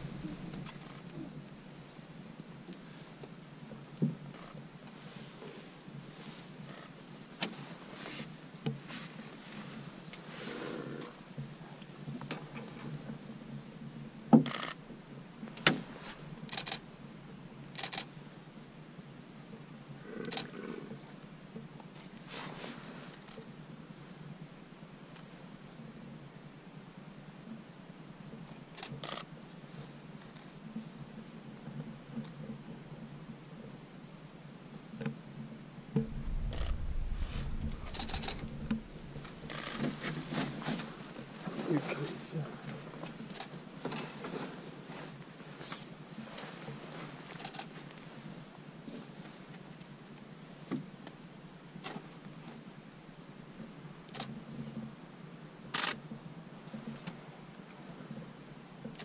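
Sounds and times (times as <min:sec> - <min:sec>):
low rumble: 0:00.0 - 0:00.9, 0:35.9 - 0:40.7
rattling bursts of clicks: 0:37.8 - 0:39.9.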